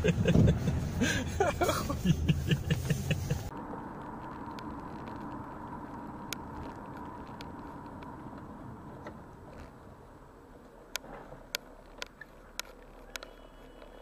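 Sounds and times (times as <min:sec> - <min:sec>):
car engine and road noise: 0:00.0 - 0:14.0
faint ticks: 0:10.9 - 0:14.0.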